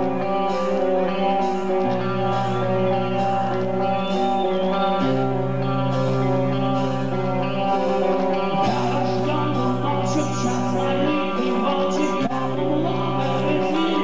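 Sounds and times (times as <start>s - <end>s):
heavy metal band playing: 0.0s - 14.0s
man singing into microphone: 8.6s - 14.0s.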